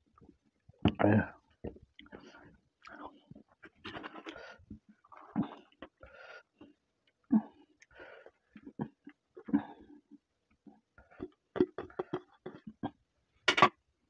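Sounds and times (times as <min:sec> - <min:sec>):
plate scraping and knocking: 0:13.5 - 0:13.8.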